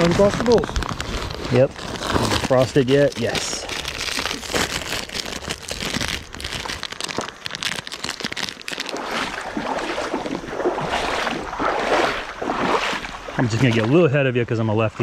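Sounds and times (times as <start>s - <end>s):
foil snack pouch crinkling: 0.0s - 9.4s.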